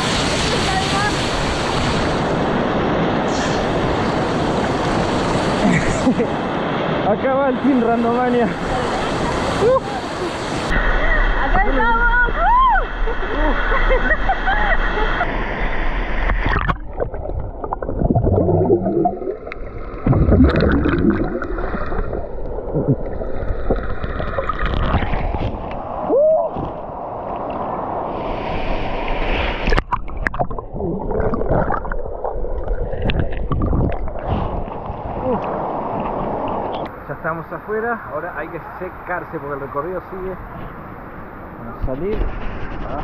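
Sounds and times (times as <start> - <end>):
water splashes: 14.5 - 37.4
water sloshing and gurgling: 15.2 - 36.9.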